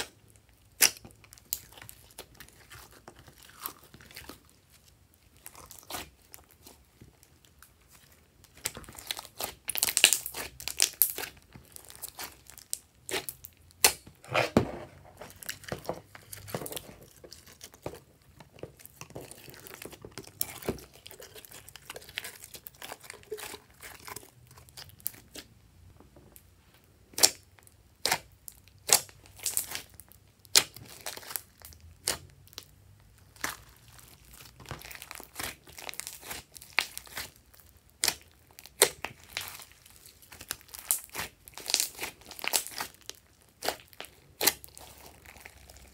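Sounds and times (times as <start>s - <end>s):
hands squishing slime: 0.0s - 25.5s, 27.1s - 45.9s.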